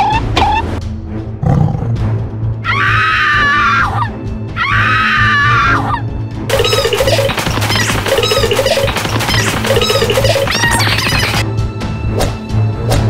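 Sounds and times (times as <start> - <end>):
cartoon animal screams: 2.6 - 6.0.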